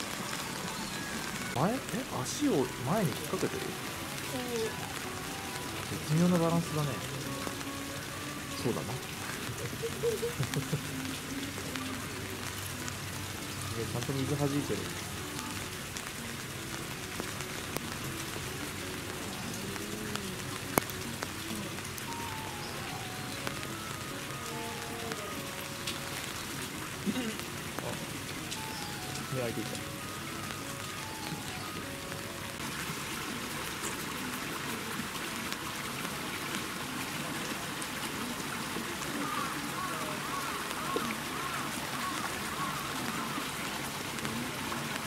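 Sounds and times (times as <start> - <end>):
steady rain falling: 0.0 - 45.0
water trickling: 0.0 - 45.0.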